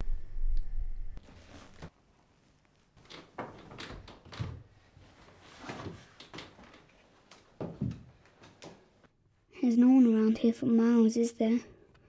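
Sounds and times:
rustling: 0:01.2 - 0:08.8
soft knocks and creaks: 0:03.0 - 0:08.9.

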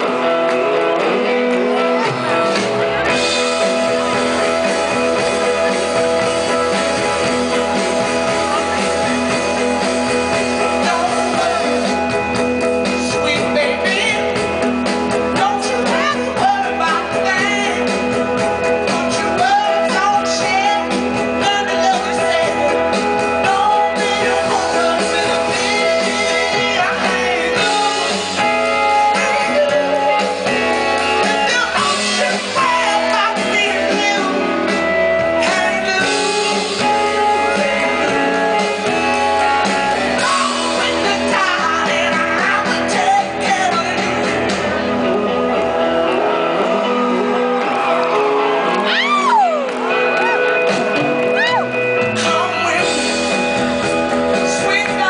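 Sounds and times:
live rock band playing: 0:00.0 - 0:55.0
woman singing lead vocal: 0:10.3 - 0:12.2, 0:12.9 - 0:14.5, 0:15.1 - 0:18.2, 0:18.8 - 0:44.8, 0:51.4 - 0:53.6, 0:54.3 - 0:55.0.

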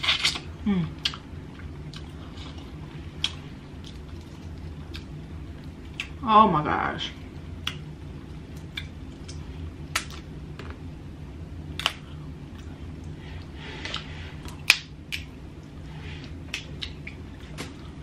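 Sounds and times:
low steady hum: 0:00.0 - 0:18.0.

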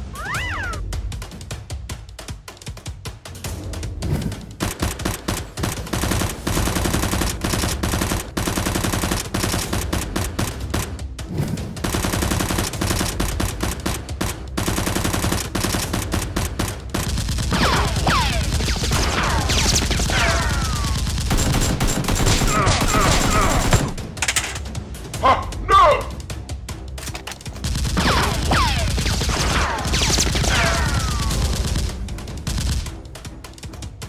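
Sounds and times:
automatic gunfire bursts: 0:04.6 - 0:10.6, 0:14.6 - 0:24.0, 0:27.6 - 0:32.9
toy blasters firing: 0:17.5 - 0:23.9, 0:28.0 - 0:31.9.

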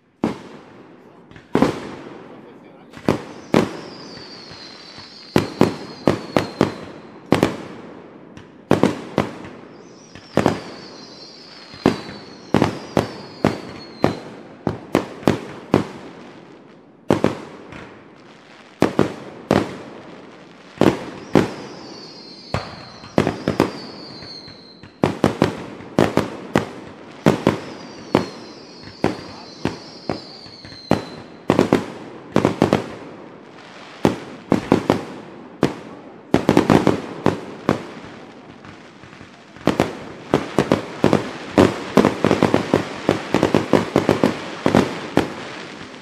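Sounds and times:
fireworks and firecrackers banging: 0:00.0 - 0:46.0
falling firework whistle: 0:03.1 - 0:07.4, 0:09.4 - 0:14.4, 0:20.8 - 0:31.8.

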